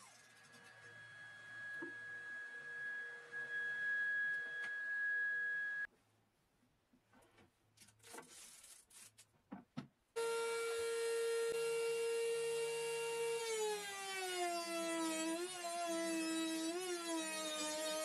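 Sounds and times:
machine whine: 0.0 - 5.9.

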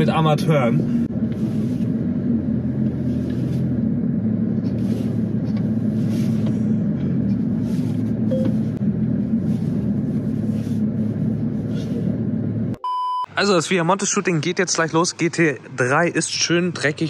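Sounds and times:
car engine at low revs: 0.0 - 12.8.

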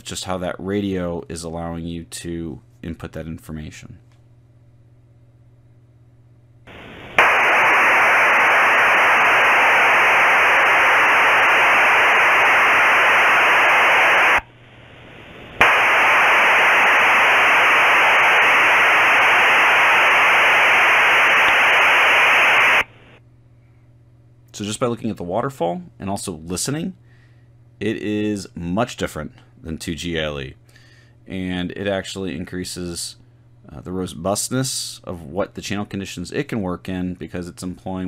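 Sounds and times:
hiss-like modem signal bursts: 6.7 - 23.2.

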